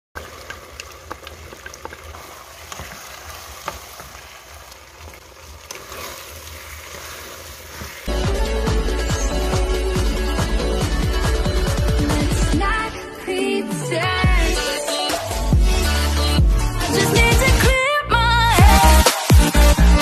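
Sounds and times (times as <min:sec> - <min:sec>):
food sizzling in a pan: 0:00.2 - 0:09.1
loud electronic music: 0:08.1 - 0:17.8, 0:18.4 - 0:20.0.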